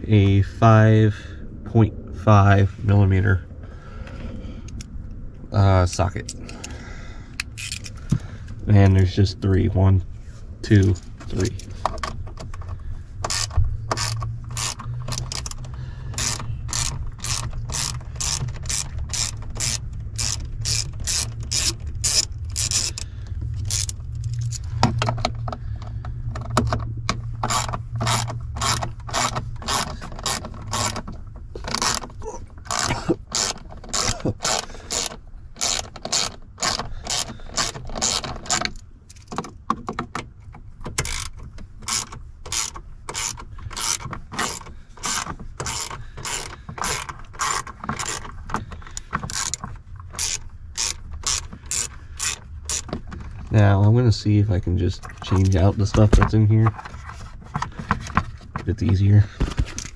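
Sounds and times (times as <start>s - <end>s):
low steady hum: 0.0s - 59.9s
ratchet wrench clicking: 7.4s - 8.0s, 13.2s - 25.4s, 27.4s - 31.0s, 32.7s - 39.3s, 41.0s - 53.0s.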